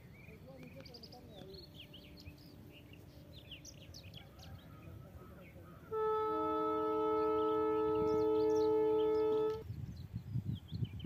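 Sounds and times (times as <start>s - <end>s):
birds chirping faintly: 0.0s - 11.0s
loud horn chord: 5.9s - 9.6s.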